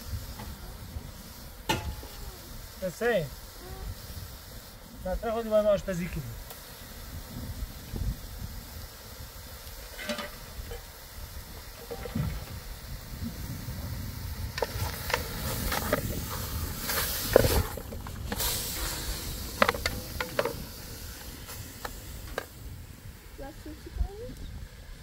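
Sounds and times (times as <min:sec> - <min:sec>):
sharp pops from fire: 0:00.0 - 0:02.8, 0:06.4 - 0:08.5, 0:09.2 - 0:22.7
wood fire crackling: 0:00.0 - 0:25.0.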